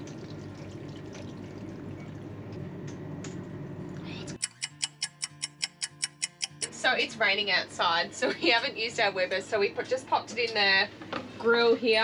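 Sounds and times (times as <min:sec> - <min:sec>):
low steady hum: 0:00.0 - 0:04.4
clock ticking: 0:04.4 - 0:06.7.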